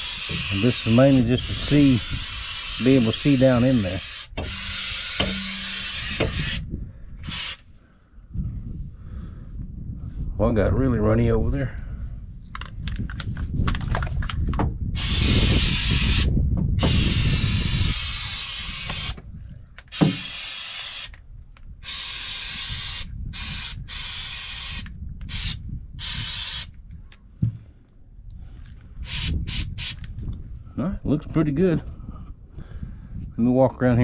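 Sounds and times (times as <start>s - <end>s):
aerosol can hissing: 0.0s - 6.6s, 7.2s - 7.6s, 15.0s - 19.2s, 19.9s - 21.1s, 21.8s - 26.7s
sharp knocks: 5.2s - 5.6s.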